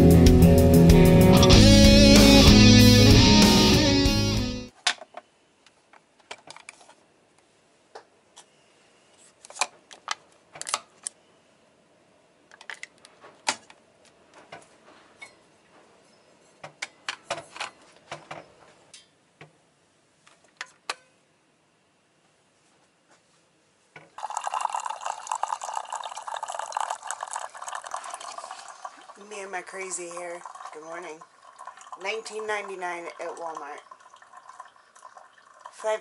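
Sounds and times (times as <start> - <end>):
plastic parts clicking and tapping: 12.5 - 13.8.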